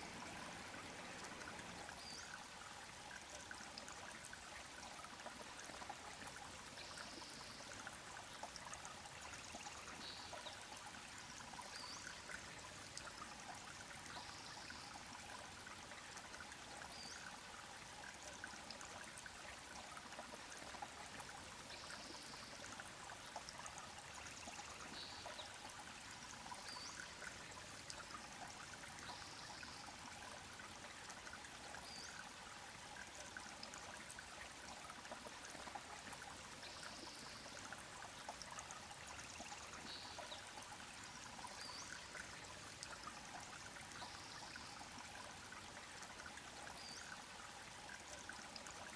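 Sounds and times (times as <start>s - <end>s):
creek trickling over stones: 0.0s - 48.9s.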